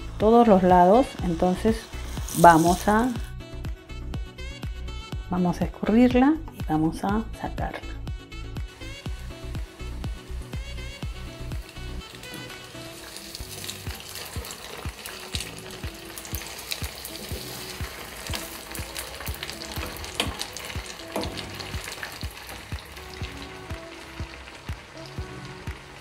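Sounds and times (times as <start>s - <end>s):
croquettes deep-frying in oil: 0.0s - 3.3s, 8.7s - 26.0s
crackling pops of frying oil: 10.5s - 26.0s.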